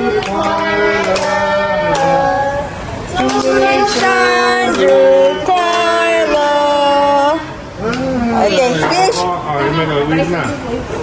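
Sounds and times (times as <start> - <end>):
group singing a birthday song: 0.0 - 9.2
hand claps: 0.2 - 2.3, 3.2 - 6.6.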